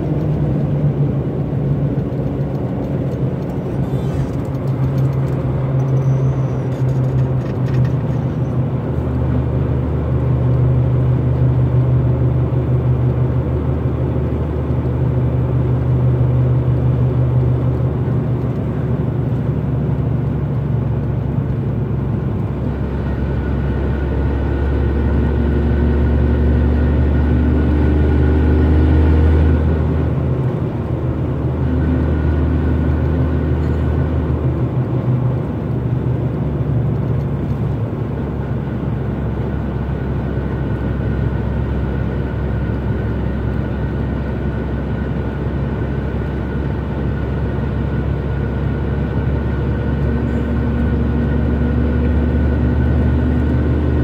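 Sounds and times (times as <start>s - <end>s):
diesel engine from inside cab: 0.0s - 54.0s.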